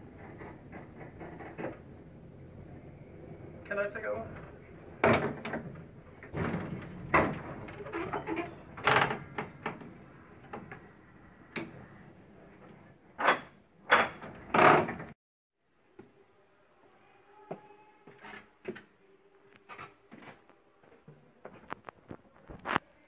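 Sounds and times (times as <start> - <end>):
tram controls clunking and rattling: 4.3 - 10.9.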